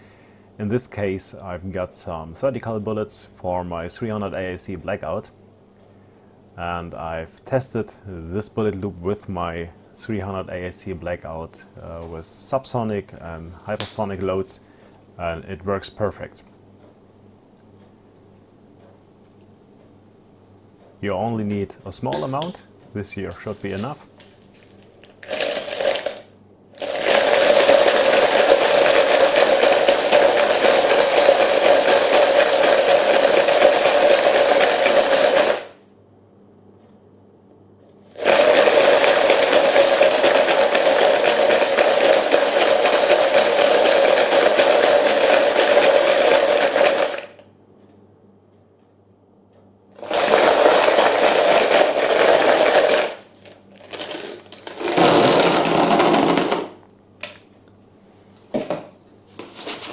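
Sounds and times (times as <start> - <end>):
bullets rattling in plastic bucket: 25.0 - 26.2, 26.8 - 35.7, 38.2 - 47.4, 50.0 - 56.7.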